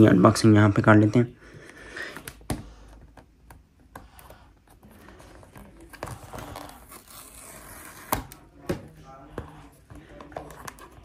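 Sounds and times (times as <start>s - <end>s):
paper tearing: 6.2s - 8.4s.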